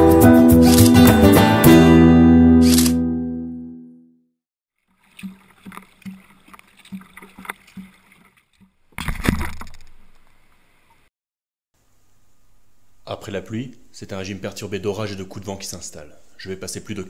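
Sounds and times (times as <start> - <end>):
water slapping hull: 4.8 - 10.4
paddle strokes splashing: 4.8 - 11.1.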